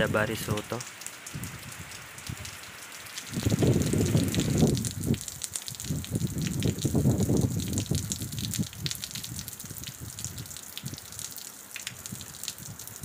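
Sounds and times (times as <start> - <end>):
rain pattering on puddles: 0.0 - 13.0
low gusty rumble: 3.3 - 11.0.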